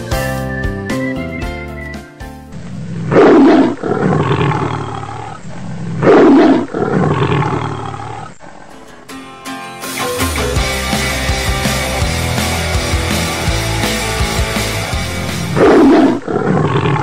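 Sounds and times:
guitar music: 0:00.0 - 0:02.5, 0:08.7 - 0:15.7
tiger roaring: 0:02.8 - 0:08.7, 0:15.4 - 0:17.0.

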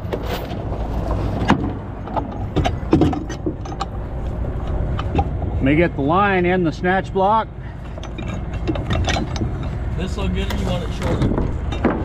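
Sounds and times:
metal chain clinking and knocking: 0:07.8 - 0:12.0.

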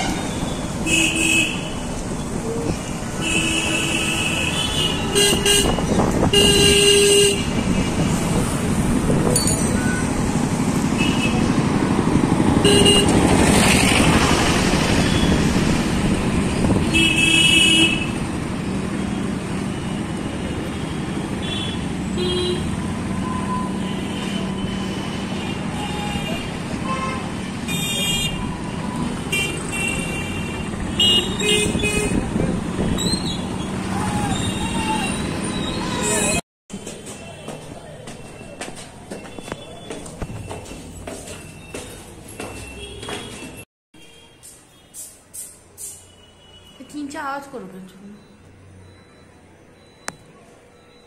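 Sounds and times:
road traffic noise: 0:00.0 - 0:51.0
vehicle horns honking: 0:03.2 - 0:08.1, 0:10.9 - 0:11.5, 0:12.6 - 0:13.3, 0:20.8 - 0:32.4.

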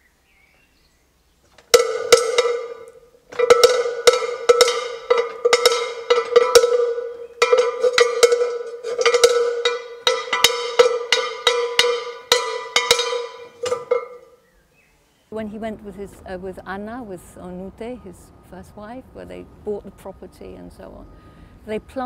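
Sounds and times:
cowbell clanking: 0:01.7 - 0:14.4.

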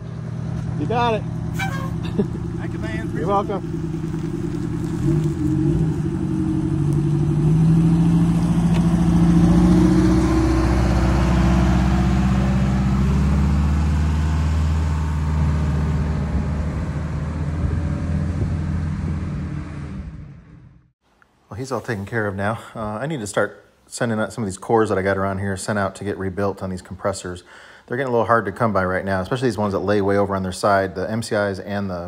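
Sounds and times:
coach diesel engine pulling away: 0:00.0 - 0:20.7.

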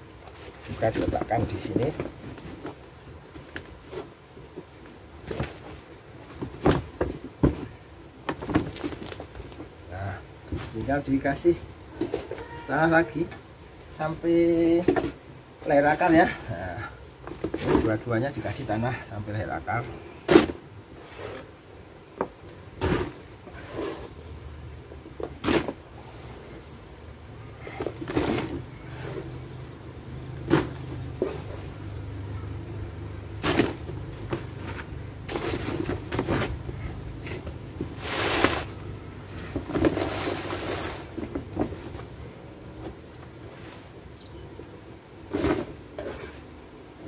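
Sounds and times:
fabric bag and soil rustling: 0:33.3 - 0:44.0.

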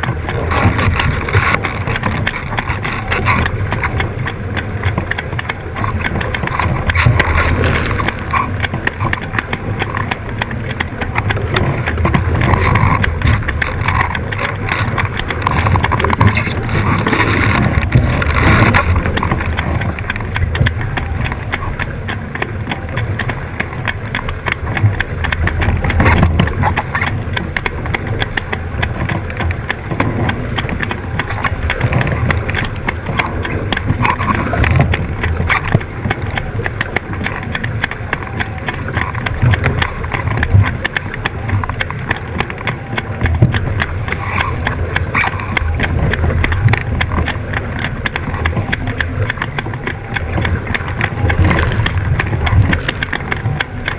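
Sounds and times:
wind buffeting microphone: 0:00.0 - 0:22.0, 0:22.7 - 0:53.9
water rushing past hull: 0:00.0 - 0:53.9
water splashes: 0:00.0 - 0:53.9.

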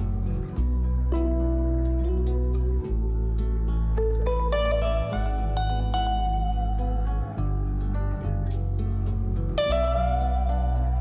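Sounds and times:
slow melody over bass line: 0:00.0 - 0:11.0.

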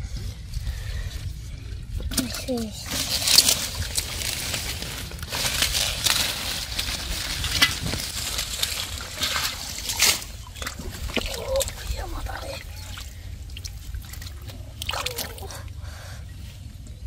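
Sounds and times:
hands splashing in muddy water: 0:08.5 - 0:15.6.

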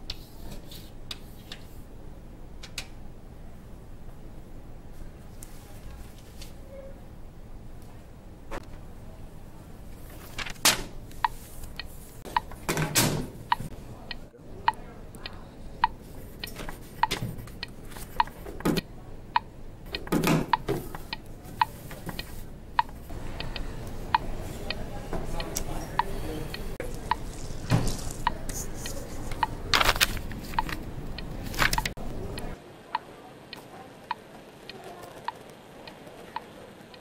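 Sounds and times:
clock ticking: 0:11.2 - 0:12.6, 0:13.5 - 0:24.8
rustling: 0:26.8 - 0:30.8.

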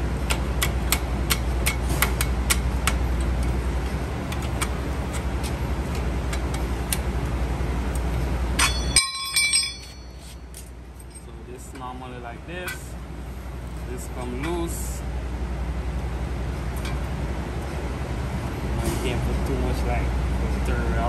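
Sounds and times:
steady low rumble: 0:00.0 - 0:21.0
metal tool clanging: 0:08.6 - 0:11.4.

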